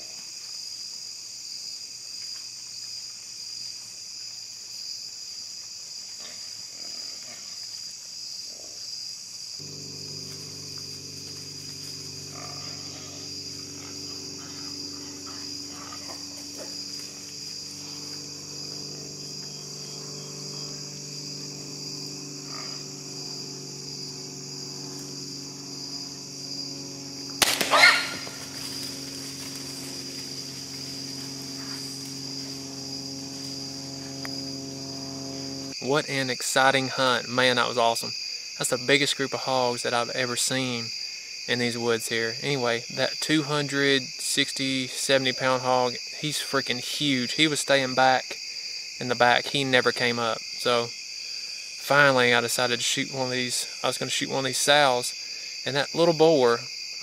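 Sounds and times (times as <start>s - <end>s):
crickets chirping: 0.0s - 57.0s
crossbow shot crack: 27.4s - 29.2s.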